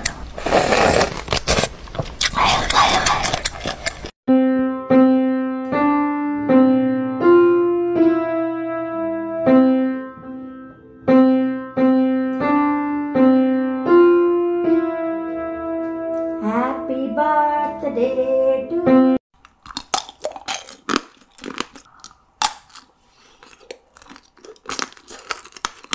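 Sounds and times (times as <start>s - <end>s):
slow piano melody: 4.3s - 19.2s.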